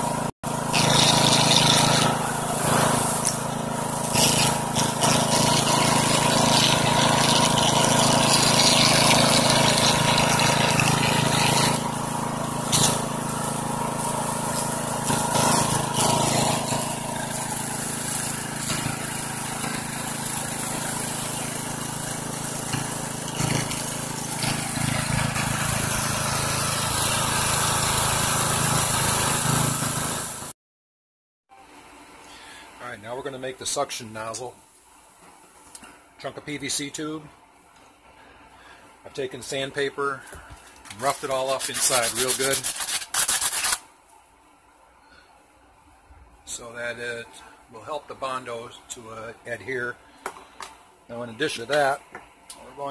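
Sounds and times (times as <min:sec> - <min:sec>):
engine-driven water pump running: 0:00.0 - 0:30.5
water gushing from hose: 0:00.0 - 0:30.5, 0:40.7 - 0:43.8.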